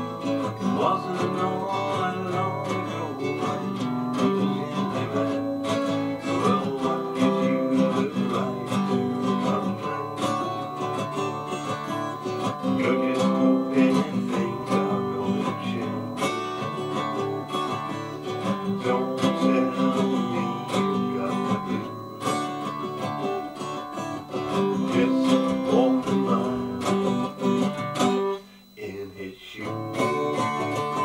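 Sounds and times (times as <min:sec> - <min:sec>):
guitar strumming chords: 0:00.0 - 0:31.0.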